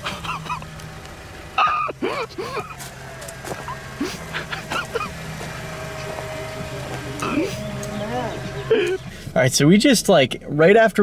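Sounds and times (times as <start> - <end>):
vehicle engine idling: 0.0 - 11.0
bursts of voices: 7.0 - 9.7.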